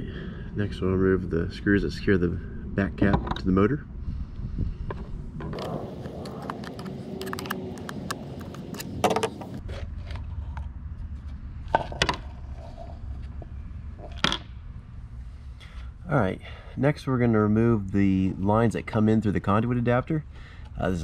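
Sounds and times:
end cap clacking: 0:05.6 - 0:09.6
screwdriver clicking and scraping: 0:05.6 - 0:10.2.

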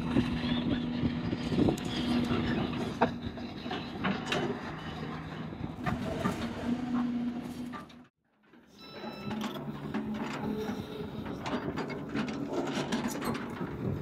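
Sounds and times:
short high beep: 0:08.7 - 0:09.5.

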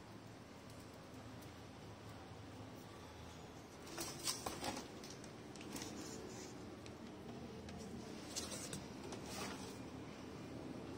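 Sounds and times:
faint handling clicks and scrapes: 0:03.7 - 0:09.9.

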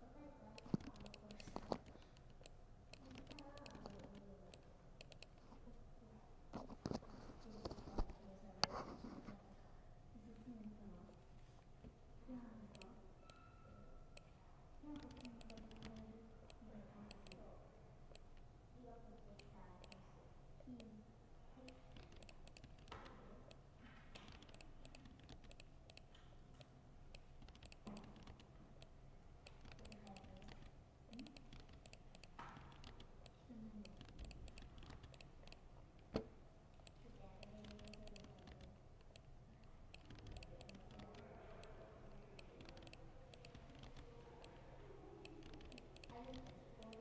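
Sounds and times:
laptop keyboard typing: 0:00.5 - 0:05.5, 0:14.2 - 0:17.5, 0:21.6 - 0:36.2, 0:36.8 - 0:44.6, 0:45.2 - 0:47.0.

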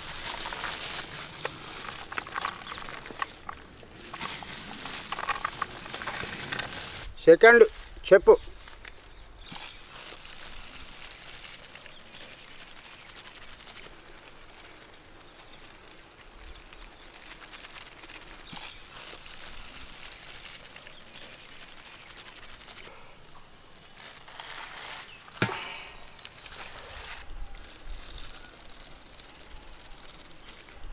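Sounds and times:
outdoor background hiss: 0:00.0 - 0:30.9
soft food handling sounds: 0:00.0 - 0:30.9
sharp knock: 0:25.4 - 0:25.8.

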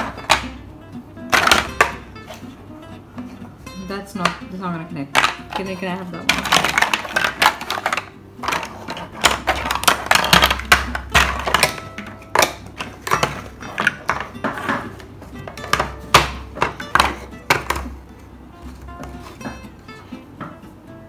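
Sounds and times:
plastic building blocks clattering: 0:00.0 - 0:00.6, 0:01.3 - 0:02.0, 0:05.2 - 0:17.9.

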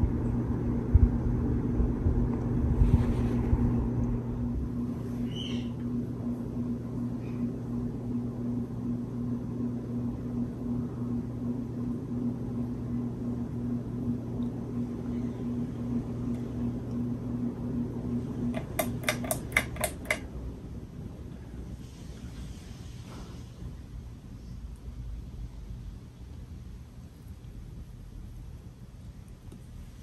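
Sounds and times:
ceiling fan motor hum: 0:00.0 - 0:30.0
sharp clicks: 0:18.6 - 0:20.2.

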